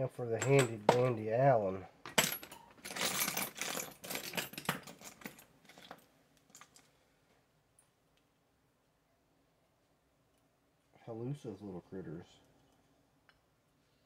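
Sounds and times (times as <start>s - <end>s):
metal hand tools clinking: 0.4s - 1.2s, 2.1s - 6.0s.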